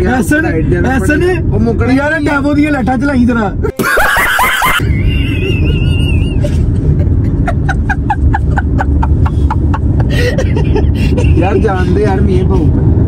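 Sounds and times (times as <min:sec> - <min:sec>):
car rumble from inside cabin: 0:00.0 - 0:03.8, 0:04.6 - 0:13.0
man laughing hard: 0:03.6 - 0:11.7.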